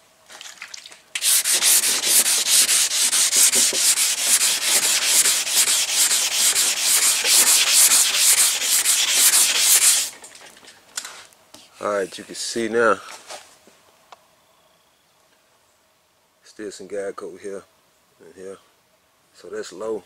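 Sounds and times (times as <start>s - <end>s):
sanding block rubbing back and forth: 1.2s - 10.2s.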